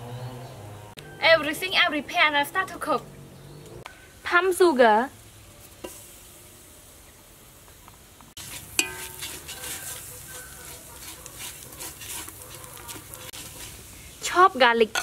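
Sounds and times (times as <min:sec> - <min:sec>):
sugar sizzling in a pan: 0:04.2 - 0:15.0
metal spoon scraping a pan: 0:08.4 - 0:14.1, 0:14.8 - 0:15.0.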